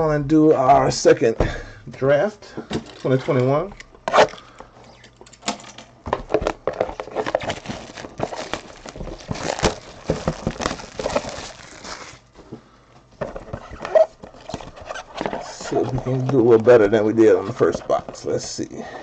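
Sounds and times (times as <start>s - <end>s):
plastic wrap crinkling and tearing: 6.9s - 12.3s.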